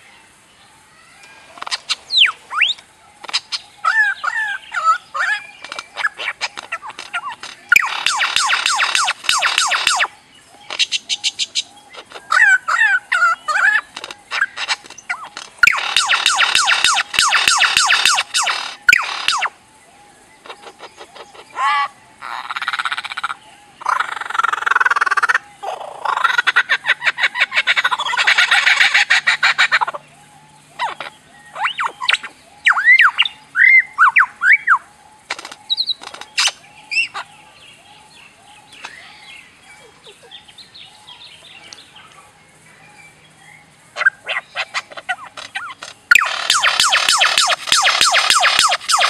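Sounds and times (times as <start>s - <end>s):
lyrebird singing: 0.0s - 49.0s.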